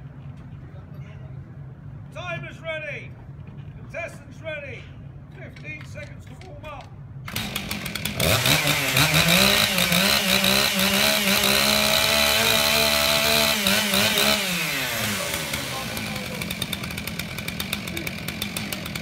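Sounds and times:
chainsaw running: 7.2 - 19.0.

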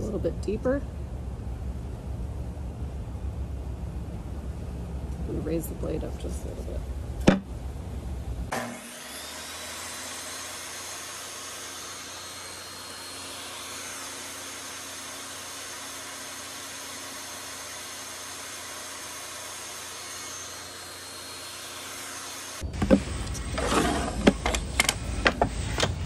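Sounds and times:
table saw motor whining: 8.5 - 26.0.

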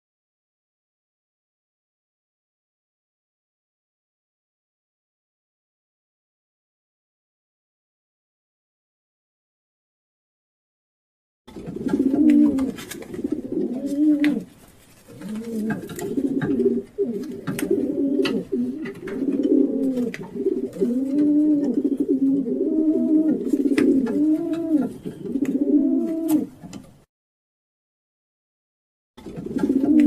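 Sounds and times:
pigeons cooing: 11.5 - 26.9, 29.2 - 30.0.

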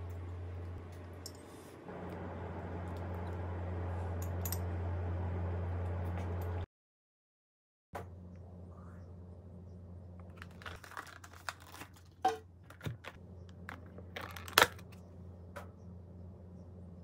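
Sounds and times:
plastic container crinkling: 10.2 - 15.0.

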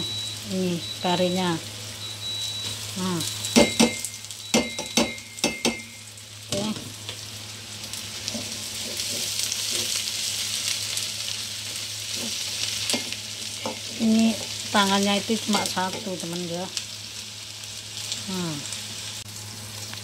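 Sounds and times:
vegetables sizzling in a wok: 0.0 - 20.0
sharp knocks against a wok: 3.5 - 5.9.

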